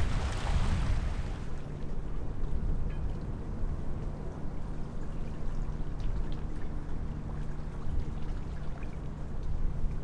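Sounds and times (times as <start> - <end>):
water lapping and splashing: 0.0 - 2.0, 4.7 - 10.0.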